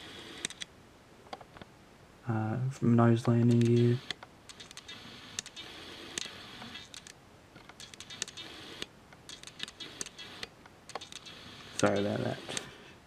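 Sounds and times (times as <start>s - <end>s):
room hiss: 0.0s - 13.0s.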